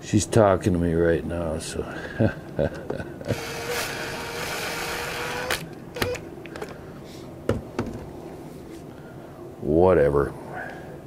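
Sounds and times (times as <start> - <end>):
cordless drill running: 3.3 - 6.2.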